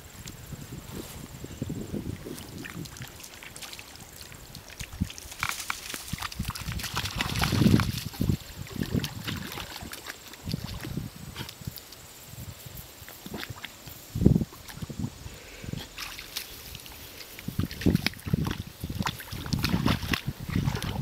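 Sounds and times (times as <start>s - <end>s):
dog splashing in water: 2.4s - 11.7s, 15.9s - 21.0s.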